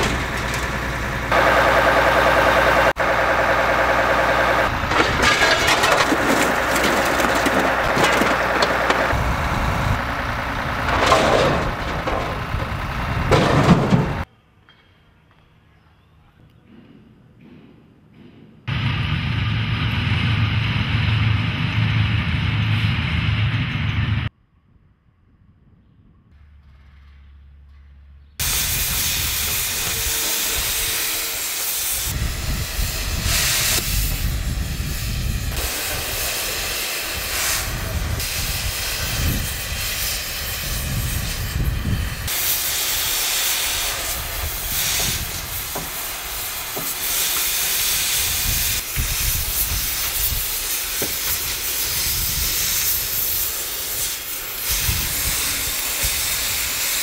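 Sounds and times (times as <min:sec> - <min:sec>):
low rumble: 0:18.7 - 0:28.2
gas cutting torches hissing: 0:28.4 - 0:57.0.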